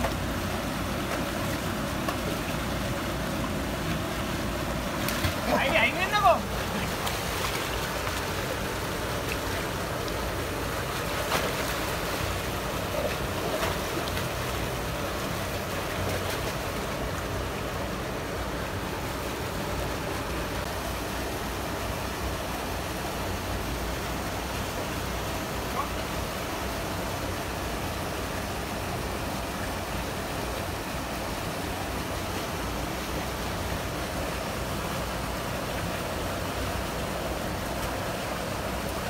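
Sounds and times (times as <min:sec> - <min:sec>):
splashes in shallow water: 0:00.0 - 0:16.9.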